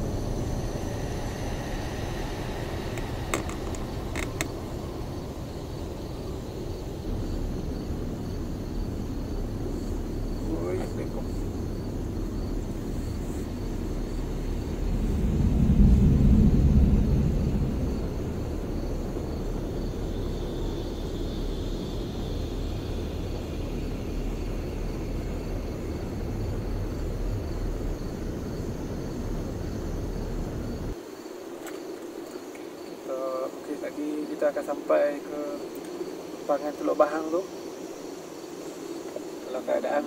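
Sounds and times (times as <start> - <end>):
car engine and road rumble: 0.0 - 20.2, 22.2 - 31.0.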